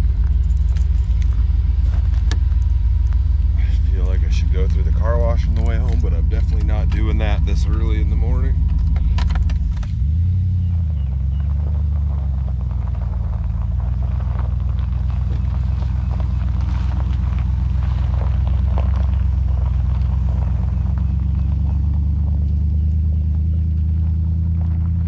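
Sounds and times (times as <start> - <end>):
clicks and rustles: 0.0 - 10.1
truck engine idling: 0.0 - 25.0.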